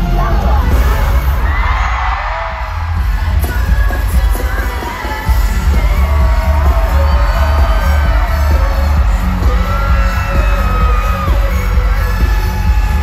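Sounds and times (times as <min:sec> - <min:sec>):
crowd cheering: 0:00.0 - 0:13.0
live pop concert music: 0:00.0 - 0:13.0
person singing: 0:02.9 - 0:13.0.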